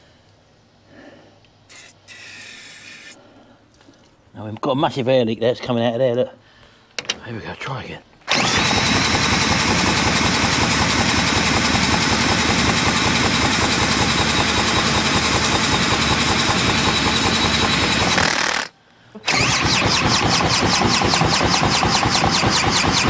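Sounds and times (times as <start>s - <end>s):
drill spinning engine over: 8.3s - 23.0s.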